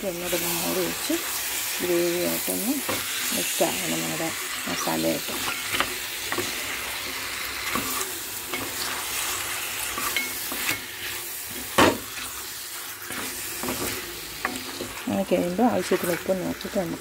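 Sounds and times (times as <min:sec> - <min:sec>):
meat sizzling in a pot: 0:00.0 - 0:17.0
spatula scraping a pot: 0:05.3 - 0:16.4.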